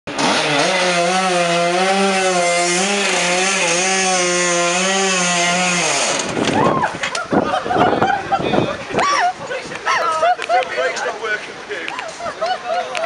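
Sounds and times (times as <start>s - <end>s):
scooter engine revving high: 0.1s - 6.4s.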